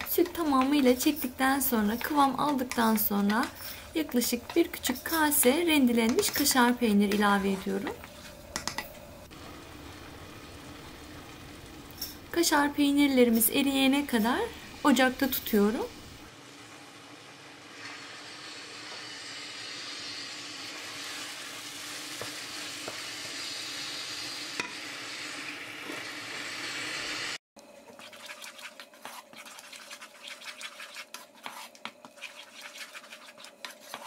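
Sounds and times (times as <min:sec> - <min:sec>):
spatula scraping a pan: 0:00.0 - 0:08.8, 0:27.9 - 0:34.0
sauce sizzling: 0:00.0 - 0:34.0.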